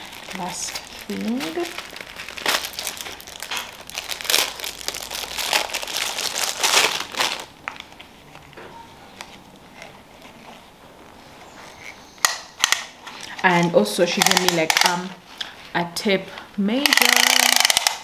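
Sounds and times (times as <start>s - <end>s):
packaging crinkling: 0.0s - 8.6s, 14.1s - 15.6s.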